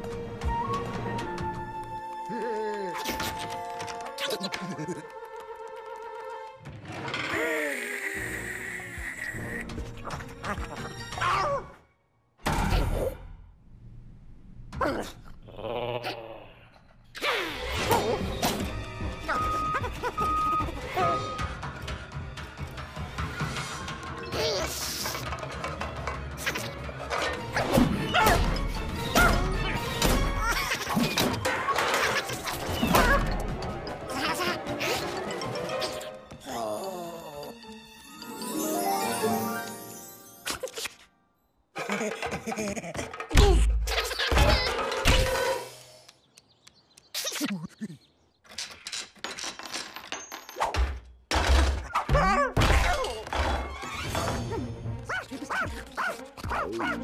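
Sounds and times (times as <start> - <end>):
background music: 0.0 - 12.0, 17.4 - 46.1, 52.2 - 57.0
cartoon clattering and crashing: 24.4 - 36.0, 41.8 - 45.7, 48.5 - 54.5
metal pots and pans clanging: 29.2 - 36.0.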